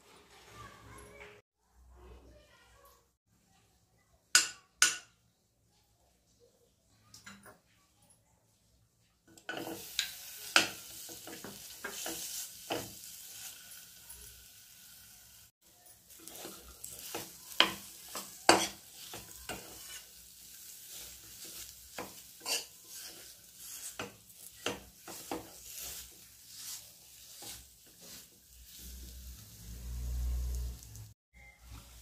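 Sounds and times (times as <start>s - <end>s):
light sizzle: 5.7s - 32.0s
metal spoon scraping a pan: 9.4s - 14.4s, 15.8s - 30.9s.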